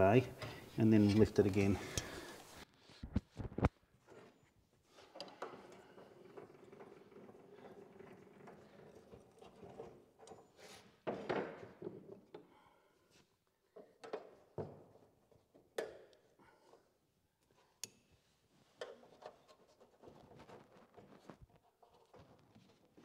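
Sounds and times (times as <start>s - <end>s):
metal knocking and scraping: 4.9s - 10.3s.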